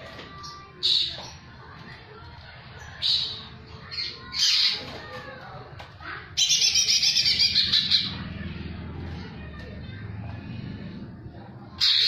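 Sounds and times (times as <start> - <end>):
bird singing rapid trill: 6.4 - 8.3.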